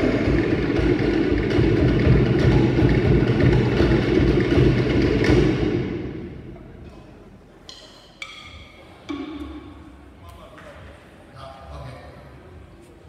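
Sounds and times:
fast dense drumming: 0.0 - 6.5.

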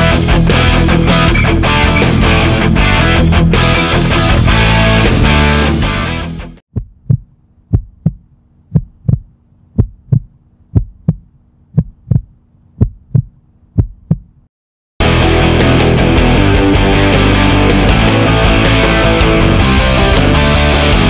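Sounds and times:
rock music with electric guitar: 0.0 - 6.6, 15.0 - 21.0
heartbeat double thumps: 6.7 - 14.5.

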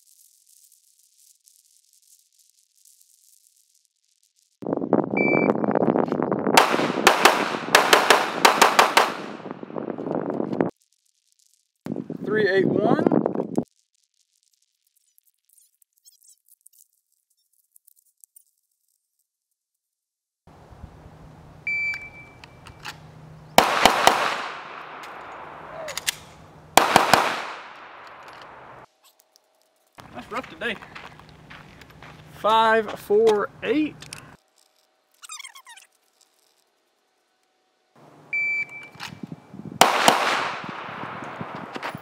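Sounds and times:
shot timer beep: 5.2 - 5.6, 21.7 - 22.4, 38.4 - 39.0
pistol shots: 6.6 - 9.7, 23.6 - 28.8, 39.8 - 41.8.

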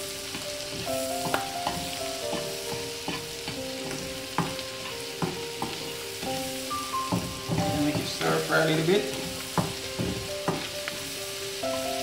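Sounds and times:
food sizzling in a frying pan: 0.0 - 12.0
metal spoon scraping a pan: 0.3 - 6.3.

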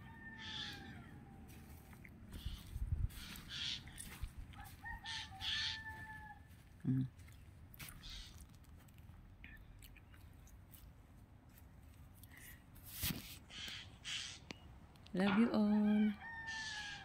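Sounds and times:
wind rumbling on microphone: 2.2 - 4.8
faint bird calls: 2.3 - 4.2, 7.9 - 8.6, 13.5 - 14.7.

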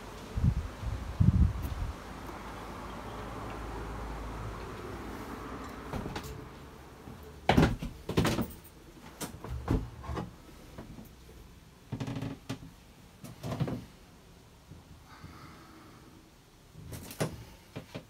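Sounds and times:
knocks and thumps in wooden cabin: 5.8 - 6.3, 7.0 - 11.1, 16.8 - 18.0.

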